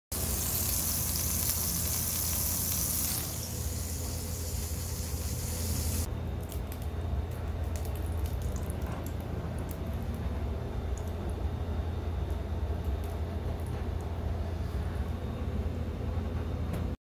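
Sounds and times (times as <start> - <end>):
meat sizzling in oil: 0.1 - 6.1
hot oil crackling: 0.1 - 10.2.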